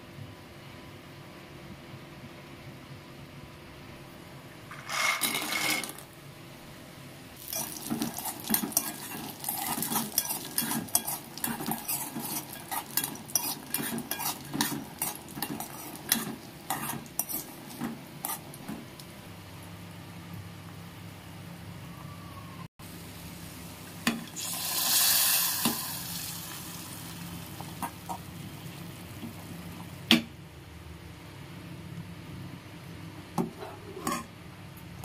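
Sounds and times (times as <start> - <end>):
spoon scraping metal pan: 4.7 - 6.0, 7.5 - 18.5, 33.6 - 34.3
berries rattling into hot oil: 4.7 - 6.1, 7.4 - 15.6, 24.1 - 29.4.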